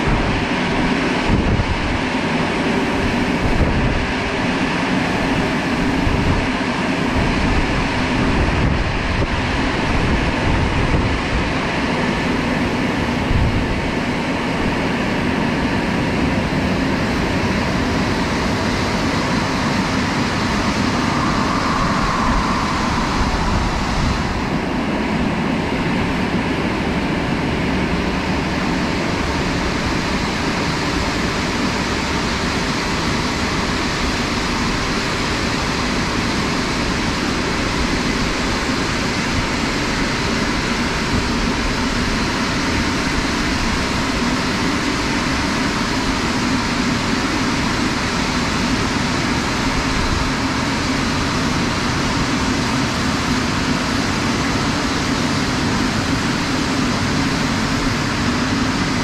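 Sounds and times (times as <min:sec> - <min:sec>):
drying blowers rushing air: 0:00.0 - 0:59.0
deep rumble: 0:17.5 - 0:26.8.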